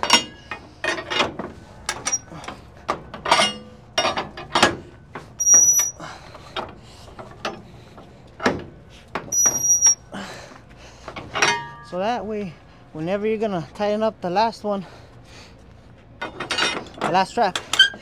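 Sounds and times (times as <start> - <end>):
short high squeals: 5.4 - 6.0, 9.3 - 10.1
ratchet winch clicks and clanks: 5.4 - 7.6.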